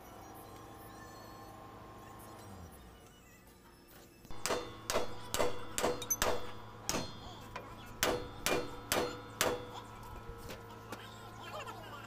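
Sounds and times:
hammer striking metal: 0:04.3 - 0:10.2.

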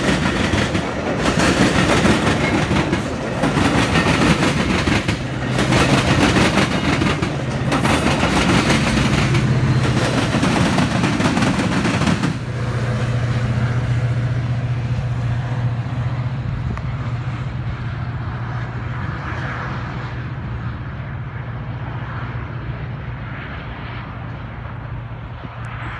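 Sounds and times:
train wheels clattering on rails: 0:00.0 - 0:14.0
diesel locomotive drone: 0:00.0 - 0:25.9.

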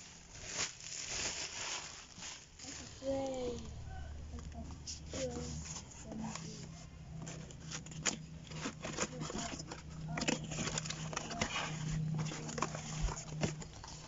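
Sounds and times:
cardboard box crackling and rustling: 0:00.0 - 0:03.8, 0:04.4 - 0:14.0
low steady hum: 0:00.0 - 0:14.0.

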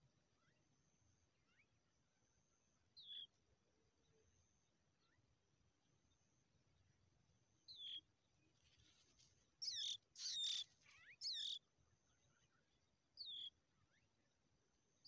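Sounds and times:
bird nestlings begging calls: 0:09.6 - 0:11.6.

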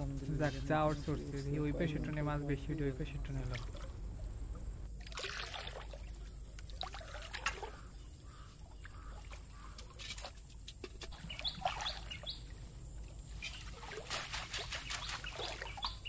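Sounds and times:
wading through shallow water: 0:00.0 - 0:16.0
bird chirping: 0:07.6 - 0:09.8, 0:11.1 - 0:12.6, 0:14.5 - 0:16.0.

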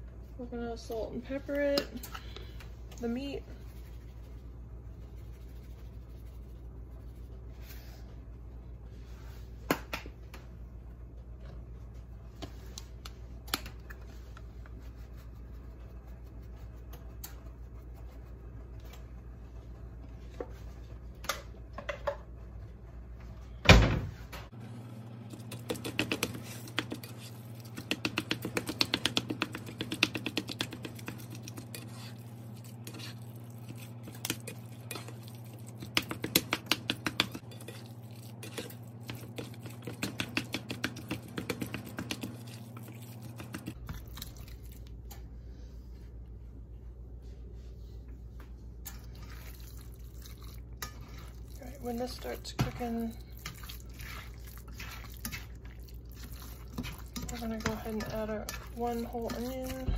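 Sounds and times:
low steady hum: 0:00.0 - 0:59.9
spatula scraping meat in skillet: 0:25.3 - 0:43.8, 0:48.9 - 0:59.9.

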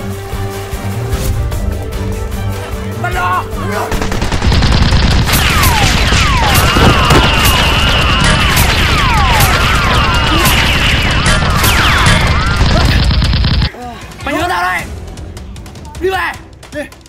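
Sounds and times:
rapid gunfire sound effects: 0:03.9 - 0:13.7.

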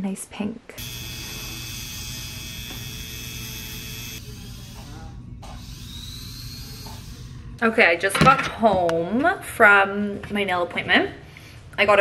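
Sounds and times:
electric nail drill whining: 0:00.8 - 0:07.4
faint voices: 0:04.2 - 0:08.0.

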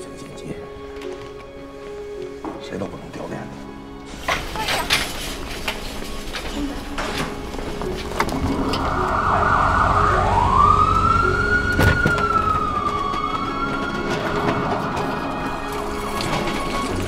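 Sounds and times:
ambulance siren wailing: 0:08.1 - 0:17.0.

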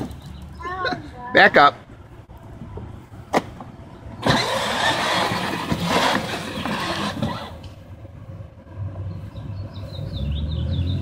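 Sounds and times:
electric toy car motor whirring: 0:04.2 - 0:07.7.

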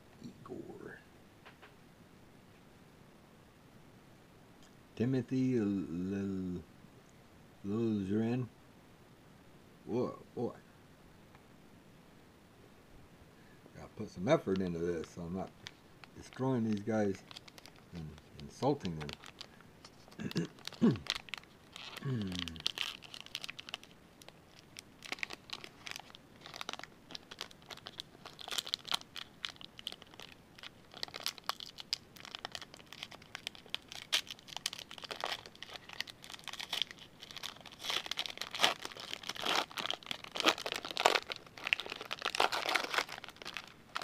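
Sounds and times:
foil pack crinkling and tearing: 0:14.4 - 0:44.0.

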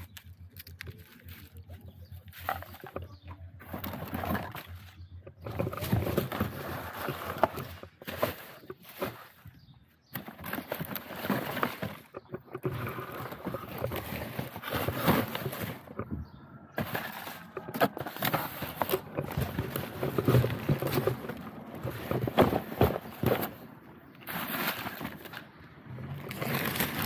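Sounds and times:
litter rustling and crackling: 0:10.1 - 0:23.6.

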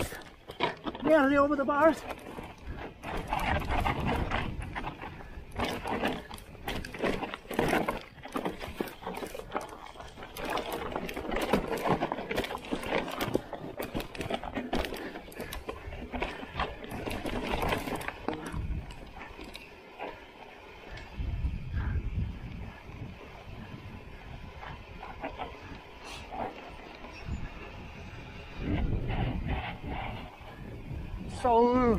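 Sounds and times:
bike chain and frame clattering: 0:00.0 - 0:31.9
bike tyres crunching over stones: 0:00.0 - 0:31.9
wheels knocking on rocks: 0:00.0 - 0:31.9.

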